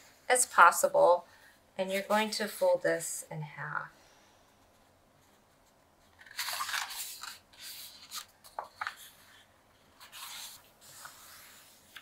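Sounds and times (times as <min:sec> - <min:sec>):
paper rustling: 0:05.2 - 0:12.0.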